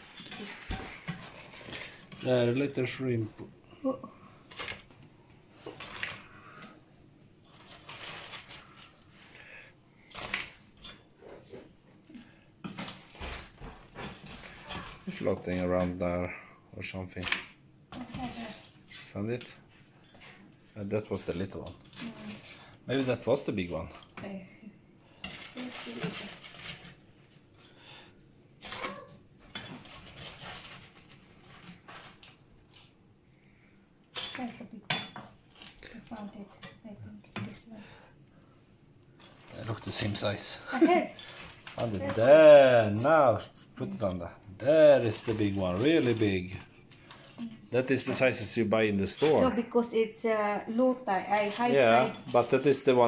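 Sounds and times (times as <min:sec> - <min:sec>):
utensils in a metal pan: 0:00.0 - 0:03.2, 0:25.1 - 0:32.9, 0:34.1 - 0:36.8, 0:39.2 - 0:42.4, 0:45.0 - 0:49.5, 0:51.3 - 0:53.0
utensil clatter: 0:25.1 - 0:28.0.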